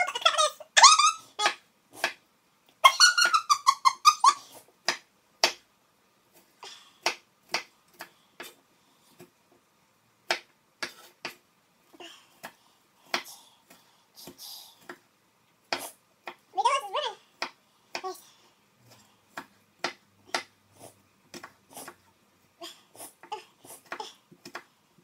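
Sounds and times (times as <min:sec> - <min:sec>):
knife chopping on a board: 0:07.0 - 0:08.6, 0:10.3 - 0:11.4, 0:19.3 - 0:20.5.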